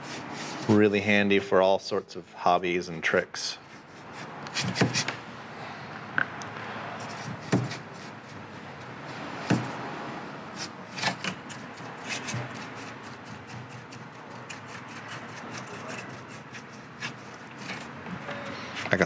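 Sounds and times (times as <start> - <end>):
paintbrush brushing on wood: 0.0 - 0.8, 11.5 - 18.3
sharp taps and knocks: 7.2 - 7.9, 9.4 - 9.8.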